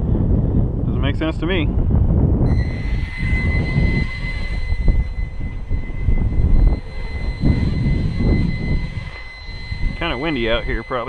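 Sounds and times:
wind buffeting microphone: 0:00.0 - 0:11.0
quadcopter motors whining: 0:02.5 - 0:11.0.

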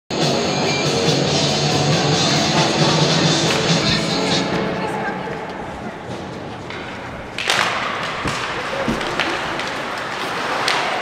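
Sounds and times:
skates scraping ice: 0:05.3 - 0:11.0
sticks and puck knocking on ice: 0:06.6 - 0:11.0.

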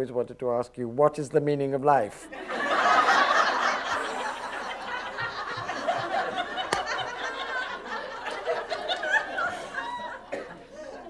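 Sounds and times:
roomful of people laughing: 0:02.2 - 0:11.0
speaker laughing: 0:02.4 - 0:10.3.

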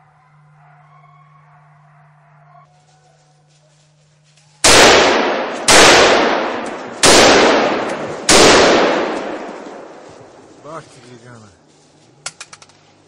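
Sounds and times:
gunshots echoing: 0:04.6 - 0:10.6.

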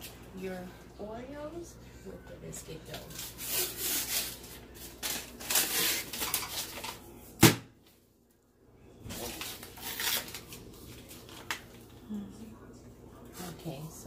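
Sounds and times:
paper label peeling and rustling: 0:02.9 - 0:07.0, 0:09.2 - 0:11.8.

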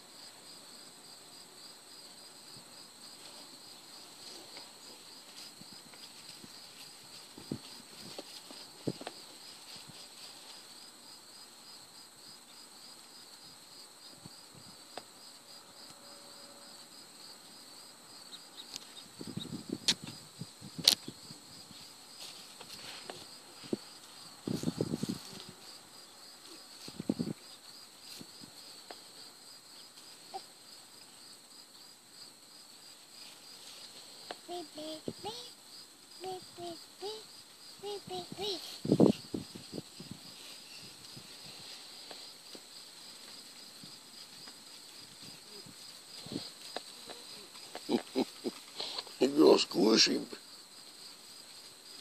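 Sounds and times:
insects chirring: 0:00.0 - 0:52.0
rustling scuffles: 0:21.8 - 0:25.6.

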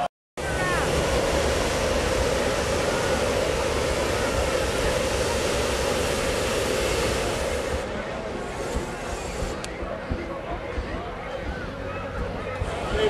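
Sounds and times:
inflator fan rush of air: 0:00.4 - 0:10.2.

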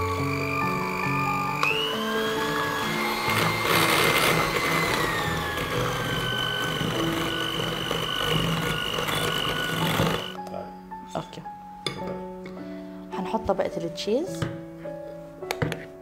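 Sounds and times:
electric mixer whining: 0:00.0 - 0:10.4.

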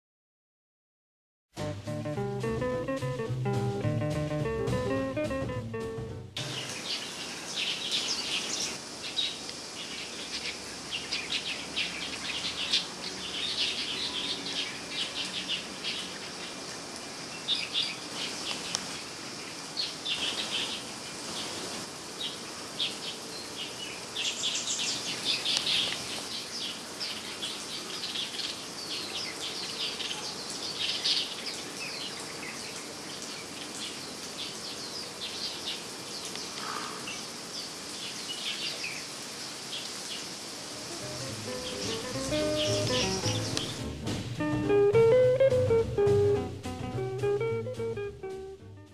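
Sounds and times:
steady high hiss: 0:01.6 - 0:13.0, 0:33.0 - 0:48.6
bulbuls chirping: 0:01.8 - 0:07.2, 0:40.8 - 0:43.9.

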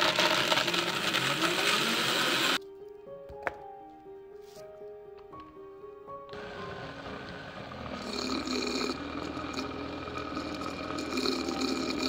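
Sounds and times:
blender running: 0:00.0 - 0:02.6, 0:06.4 - 0:12.0.

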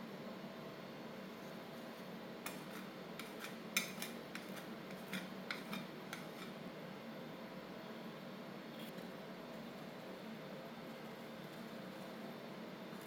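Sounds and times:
metal spatula scraping cold plate: 0:02.4 - 0:06.6.

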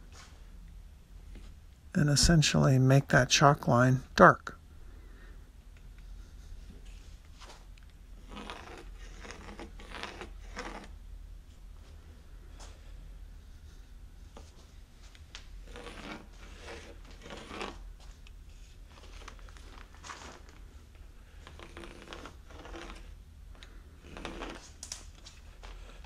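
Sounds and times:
pencil scratching on timber: 0:15.6 - 0:17.8.

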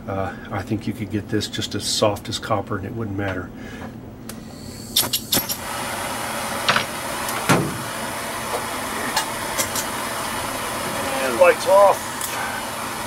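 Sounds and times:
torch flame hissing: 0:04.3 - 0:13.0.

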